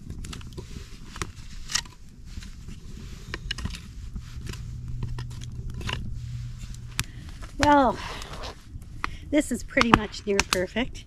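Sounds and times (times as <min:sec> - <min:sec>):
wood being handled: 0:00.0 - 0:08.6
campfire crackling and popping: 0:00.0 - 0:11.0.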